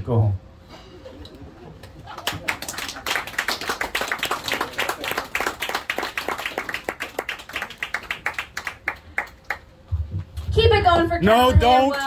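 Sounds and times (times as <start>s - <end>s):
audience applause: 2.1s - 9.6s.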